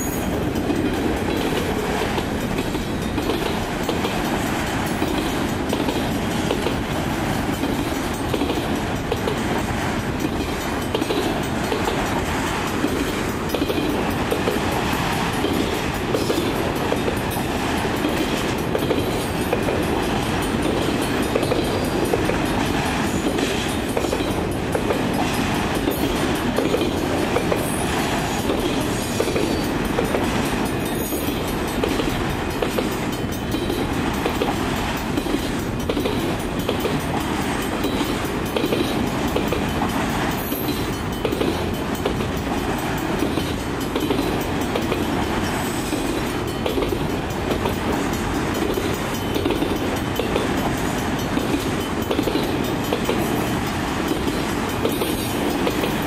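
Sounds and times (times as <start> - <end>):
freight train wheels rumbling on rails: 0.0 - 56.0.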